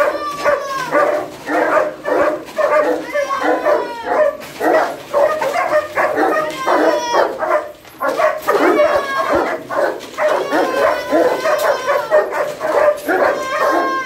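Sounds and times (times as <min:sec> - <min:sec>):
dogs barking and whining: 0:00.0 - 0:14.0.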